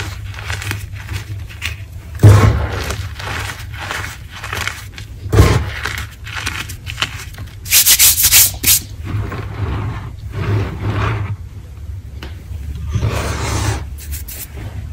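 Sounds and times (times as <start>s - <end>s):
hands crunching chalk: 0.0s - 8.9s, 13.5s - 14.5s
heavy crunch with thud: 2.2s - 3.0s, 5.3s - 5.8s
hissy palm rubs: 13.4s - 14.9s.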